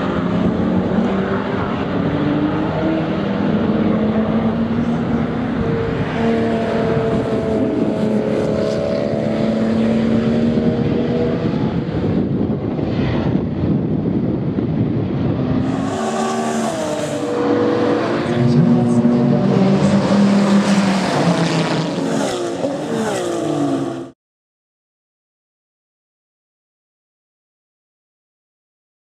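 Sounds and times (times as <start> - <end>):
race car passing by: 0.0 - 12.2, 15.3 - 24.2
race car engine under power: 15.4 - 24.0.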